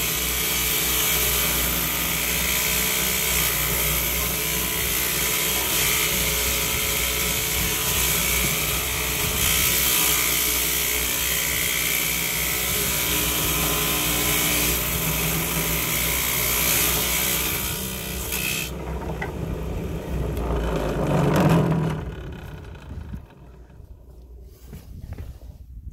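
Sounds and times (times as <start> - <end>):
table saw cutting wood: 0.0 - 23.7
low noise: 18.1 - 25.4.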